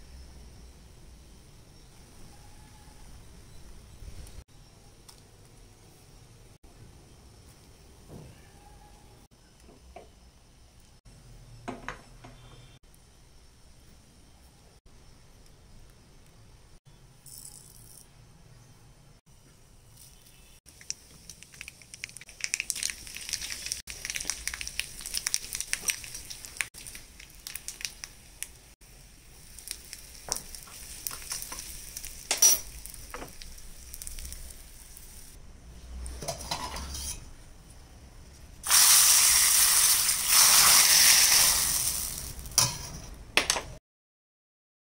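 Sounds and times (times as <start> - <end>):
spices sizzling: 19.5 - 43.2
mustard seeds popping in hot oil: 19.9 - 35.3, 38.6 - 42.8.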